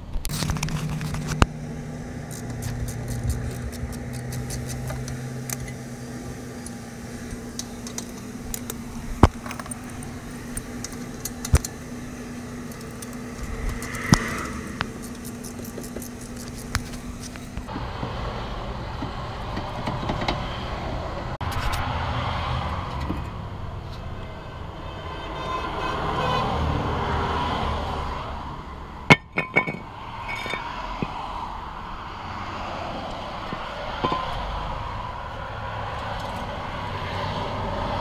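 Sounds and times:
steady low hum: 0:00.2 - 0:17.9
wrench clicking: 0:12.7 - 0:17.4
tool clinking on metal: 0:29.1 - 0:30.7.

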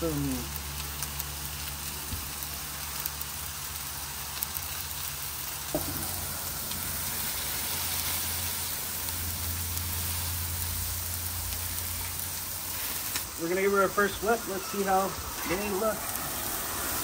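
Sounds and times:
burger patties sizzling on griddle: 0:00.0 - 0:17.0
knock: 0:05.8 - 0:06.2.

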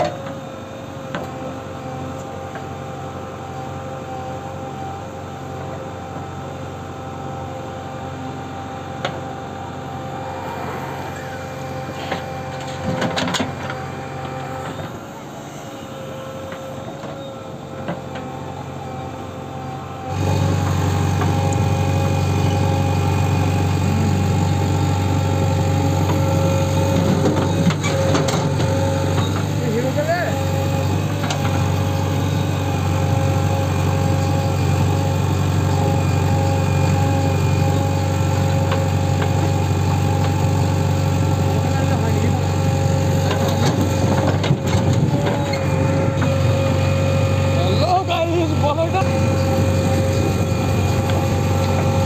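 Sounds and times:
diesel engine running: 0:00.0 - 0:52.0
steady whine: 0:07.5 - 0:17.1, 0:43.2 - 0:52.0.

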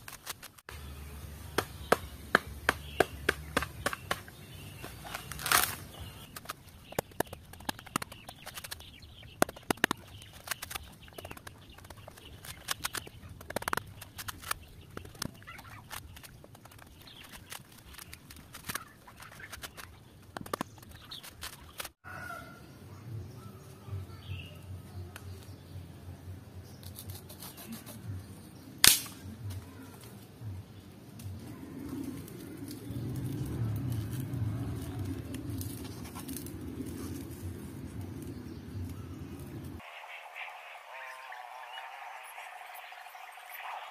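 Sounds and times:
knife splitting bamboo strip: 0:00.0 - 0:00.6, 0:01.5 - 0:08.8, 0:09.4 - 0:20.6, 0:26.8 - 0:28.0, 0:28.8 - 0:29.2
coconut husk tearing: 0:01.5 - 0:22.0, 0:26.8 - 0:28.1, 0:31.2 - 0:39.8.

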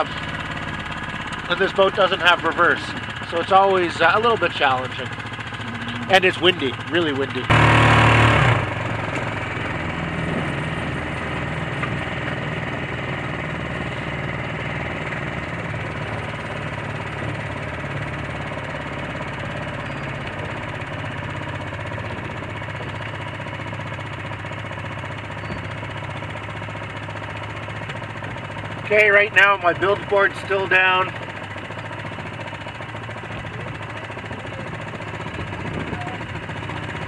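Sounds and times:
outboard motor running: 0:00.0 - 0:37.0.

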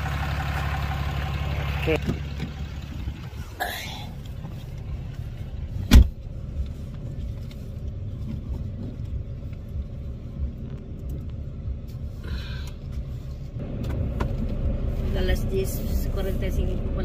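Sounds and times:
car engine idling: 0:00.0 - 0:17.0
car door slamming: 0:05.8 - 0:06.2.

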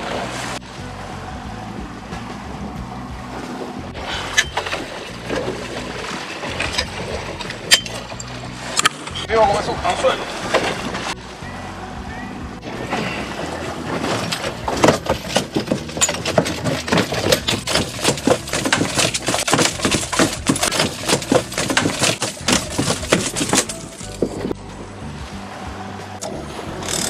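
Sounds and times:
fish slapping on boat deck: 0:12.9 - 0:24.4.

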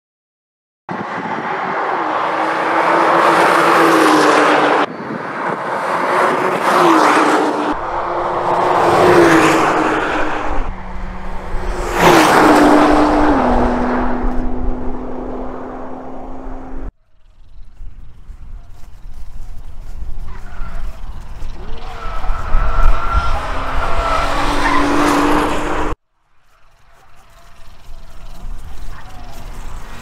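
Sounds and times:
race car engine passing with upshifts: 0:01.0 - 0:17.3, 0:21.5 - 0:26.0.

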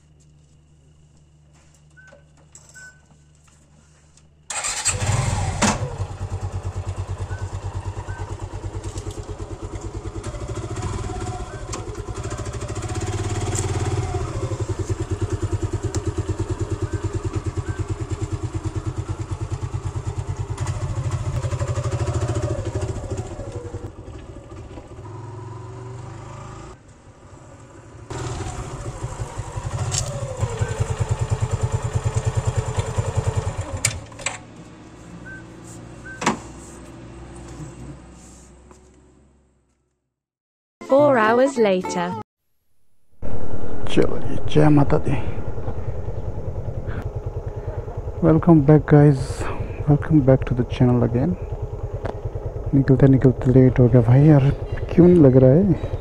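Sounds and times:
motorcycle engine revving: 0:04.5 - 0:34.2, 0:43.2 - 0:56.0.

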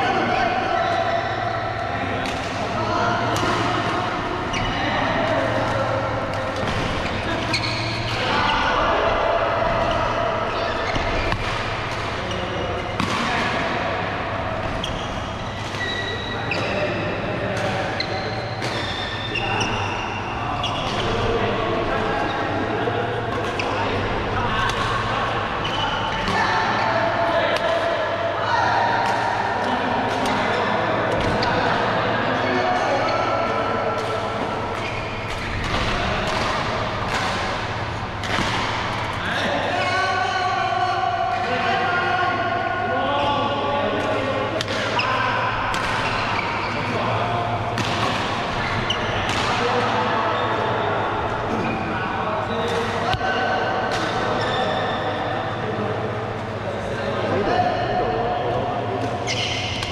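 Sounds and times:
voices in background: 0:00.0 - 0:59.9
shoes squeaking on court: 0:07.0 - 0:08.2, 0:14.7 - 0:16.7, 0:59.2 - 0:59.9
racket striking shuttlecock: 0:34.0 - 0:39.1, 0:47.7 - 0:49.6.

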